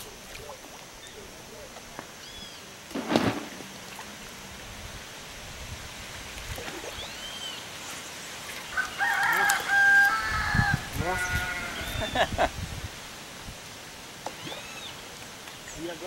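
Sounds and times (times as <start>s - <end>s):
brief thump: 2.9s - 3.6s
rooster crowing: 8.7s - 12.2s.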